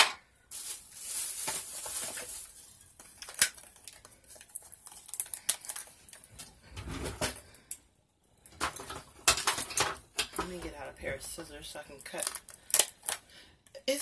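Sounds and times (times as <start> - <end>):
packaging rustle: 0.5 - 6.5.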